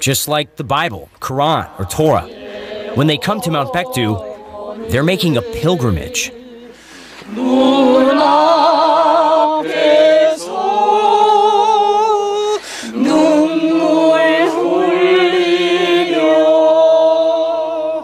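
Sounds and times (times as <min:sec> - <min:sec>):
unaccompanied singing voices: 0:01.2 - 0:18.0
singers breathing: 0:02.4 - 0:02.9, 0:06.4 - 0:07.3, 0:12.6 - 0:13.0.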